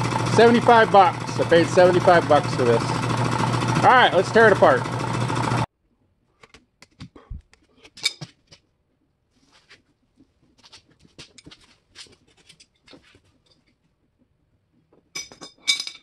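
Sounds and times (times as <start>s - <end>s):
air compressor running: 0.0s - 5.7s.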